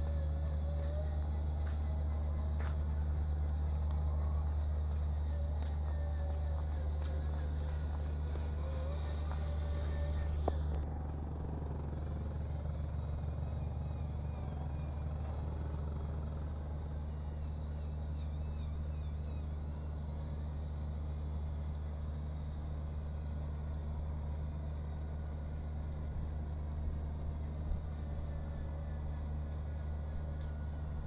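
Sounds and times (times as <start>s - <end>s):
shrill insect chorus: 0.0s - 10.8s, 12.0s - 31.0s
low hum: 0.0s - 17.4s.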